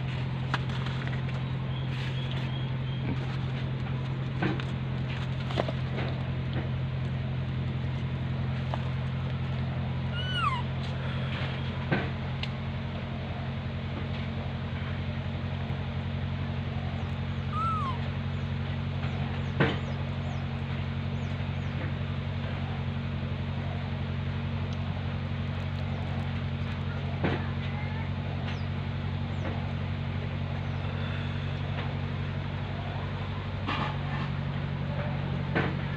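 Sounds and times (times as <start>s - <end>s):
low hum: 0.0s - 35.9s
baby monkey meow-like calls: 10.1s - 10.8s, 17.4s - 18.2s.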